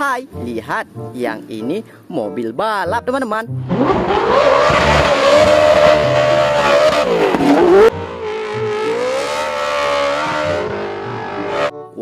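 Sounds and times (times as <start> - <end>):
car engine revving high: 3.6 - 11.7.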